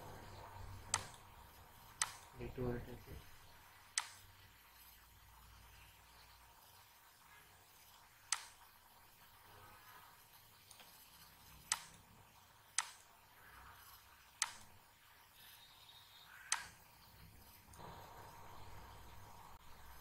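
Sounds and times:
faint background hiss: 0:00.0 - 0:20.0
computer mouse clicking: 0:00.7 - 0:02.3, 0:03.9 - 0:05.0, 0:07.8 - 0:08.7, 0:10.4 - 0:14.8, 0:15.4 - 0:17.8.

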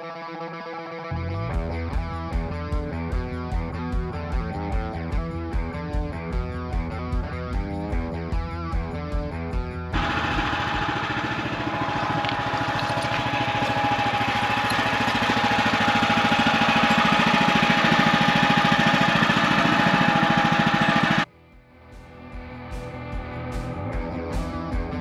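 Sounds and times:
guitar music: 0:00.0 - 0:25.0
small gasoline engine running: 0:09.9 - 0:21.3.

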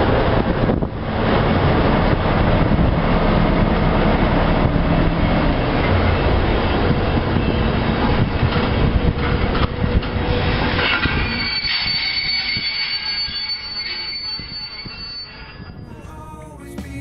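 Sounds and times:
train wheels rumbling on rails: 0:00.0 - 0:15.8
high wheel squeal: 0:09.3 - 0:15.9.

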